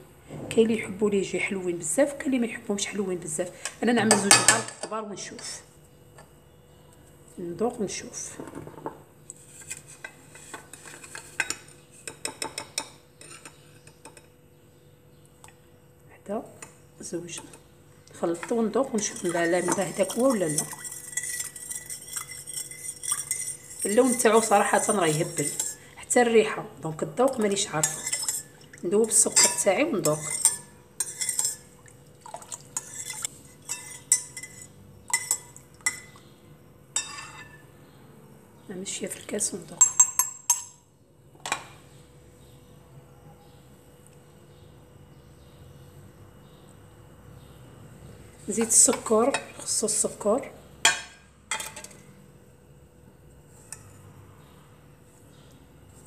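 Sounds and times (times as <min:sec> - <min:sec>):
metal spoon clinking on glass bowl: 0:18.4 - 0:25.8, 0:27.3 - 0:31.7, 0:32.8 - 0:36.2, 0:37.0 - 0:37.6, 0:39.8 - 0:40.8.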